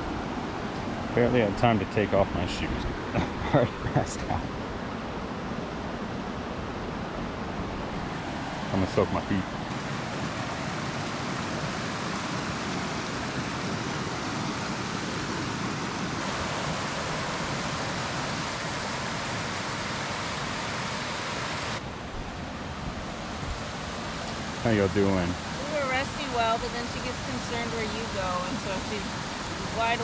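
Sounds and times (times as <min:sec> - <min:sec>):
creek rushing over stones: 0:07.9 - 0:22.0, 0:22.9 - 0:30.0.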